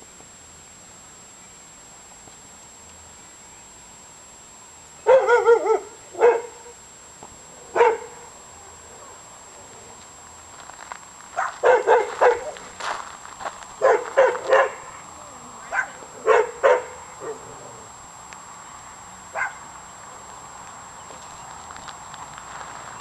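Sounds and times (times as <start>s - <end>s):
dog barking: 5.0s - 6.8s, 7.7s - 8.3s, 11.4s - 12.6s, 13.8s - 15.0s, 15.6s - 17.6s, 19.3s - 19.6s.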